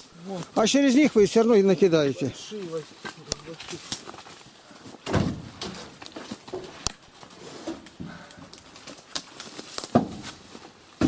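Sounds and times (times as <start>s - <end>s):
firewood logs knocking and thudding: 2.6s - 11.0s.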